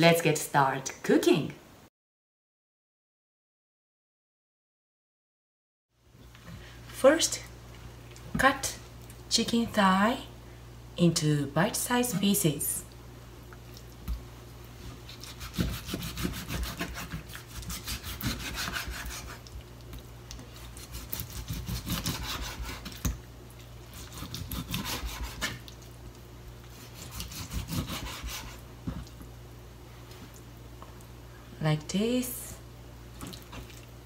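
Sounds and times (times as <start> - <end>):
knife scraping cutting board: 14.9 - 19.5, 20.6 - 23.1, 23.9 - 25.6, 26.7 - 28.6
knife slicing raw chicken: 15.0 - 19.5, 20.6 - 23.2, 23.9 - 25.6, 26.7 - 28.6.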